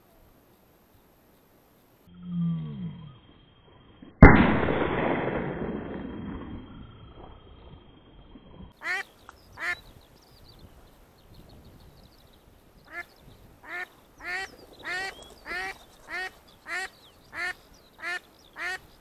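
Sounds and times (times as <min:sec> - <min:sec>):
shotgun shot echoing: 0:04.2 - 0:06.6
duck quacking: 0:08.8 - 0:09.8, 0:12.9 - 0:18.9.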